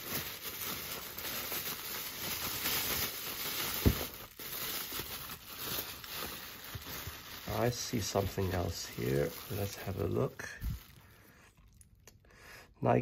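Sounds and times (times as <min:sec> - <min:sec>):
bubble wrap crinkling: 0:00.0 - 0:12.0
thump in cardboard box: 0:03.8 - 0:04.1.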